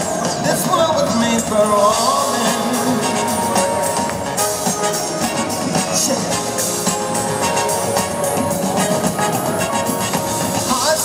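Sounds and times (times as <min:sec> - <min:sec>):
live band with horn section: 0:00.0 - 0:11.0.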